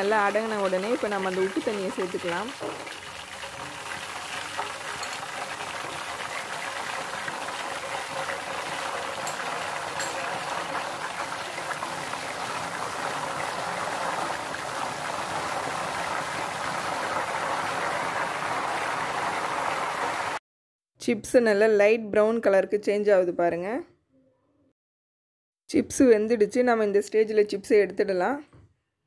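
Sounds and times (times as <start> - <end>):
potatoes sizzling in hot oil: 0.0 - 20.4.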